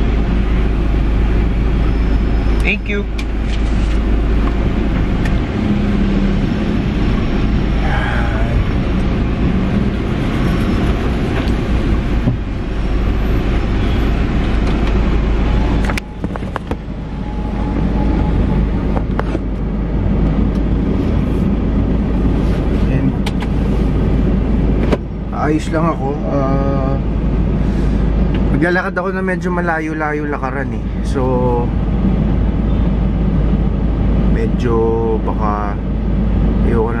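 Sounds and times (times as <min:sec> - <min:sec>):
car road and engine rumble: 0:00.0 - 0:37.0.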